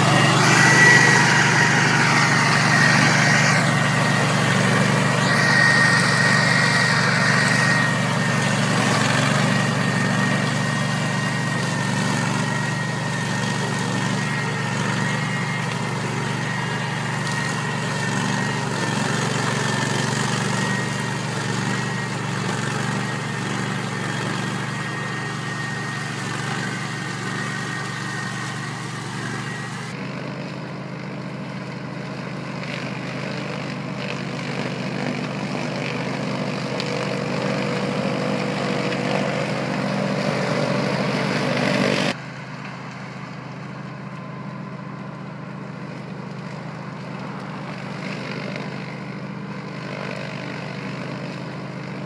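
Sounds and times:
high whine over engine: 0:00.0 - 0:52.0
ride-on mower cutting grass: 0:00.0 - 0:52.0.

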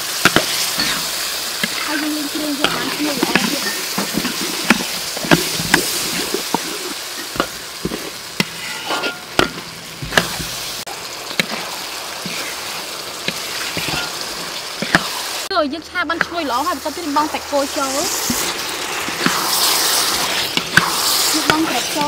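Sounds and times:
sauce sizzling in a wok: 0:00.0 - 0:22.0
spatula clicking and scraping metal: 0:07.2 - 0:09.5, 0:18.3 - 0:22.0.

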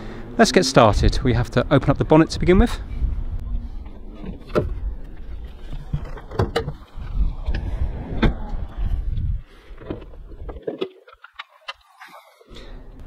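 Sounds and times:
low rumble: 0:02.4 - 0:10.6.

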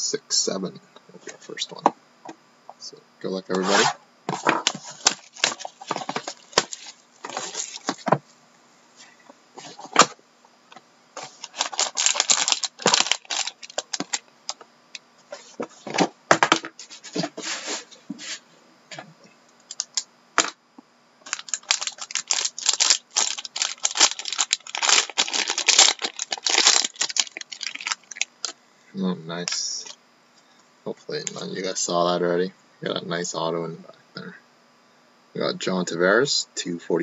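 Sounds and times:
foil wrapper tearing and crinkling: 0:04.6 - 0:08.1, 0:11.2 - 0:14.2, 0:21.2 - 0:28.6.

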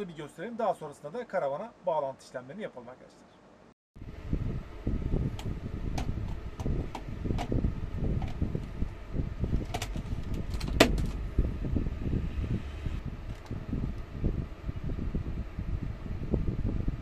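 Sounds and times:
handling rumble: 0:04.1 - 0:15.0.

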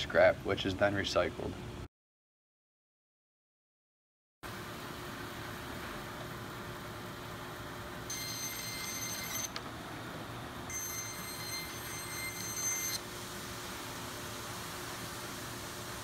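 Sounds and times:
bandsaw humming: 0:10.7 - 0:13.0
saw blade cutting plastic whine: 0:10.7 - 0:13.0.

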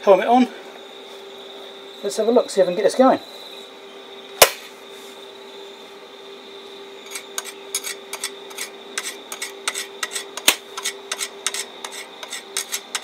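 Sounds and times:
sharp snap: 0:04.4 - 0:04.7, 0:10.4 - 0:10.6
welding rod scratching crackles: 0:07.1 - 0:13.0.

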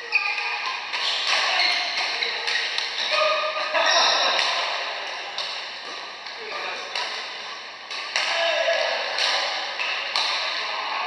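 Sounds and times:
shoes squeaking on court floor: 0:00.0 - 0:04.7
racket striking shuttlecock: 0:07.9 - 0:08.4, 0:09.1 - 0:10.6.

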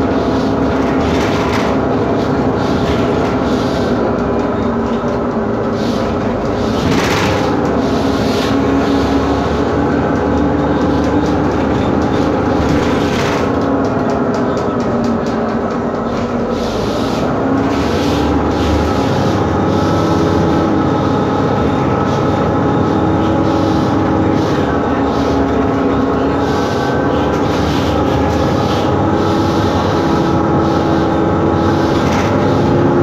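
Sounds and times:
bus diesel engine running: 0:00.0 - 0:33.0.

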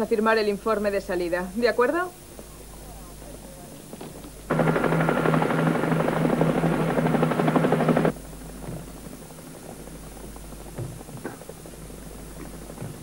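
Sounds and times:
turbine whine: 0:04.0 - 0:13.0
helicopter rotor beating: 0:04.5 - 0:13.0.

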